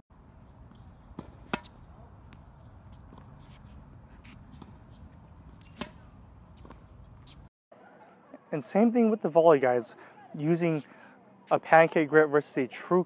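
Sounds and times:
tennis ball hit off racket: 0.7s - 7.4s.

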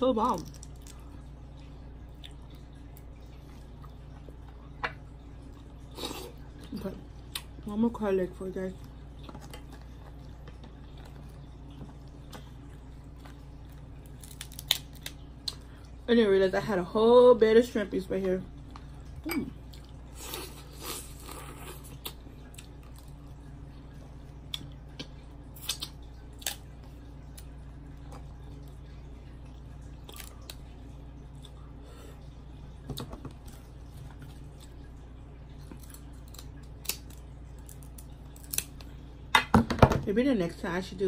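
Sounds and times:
quiet eating sounds: 0.0s - 16.6s, 17.6s - 39.3s
steady low hum: 0.0s - 41.0s
shells being peeled by hand: 14.1s - 15.1s.

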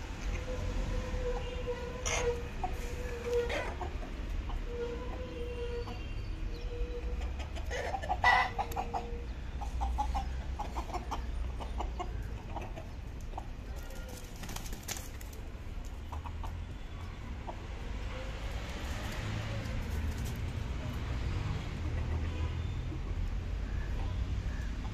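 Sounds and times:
roosters clucking: 0.0s - 24.9s.

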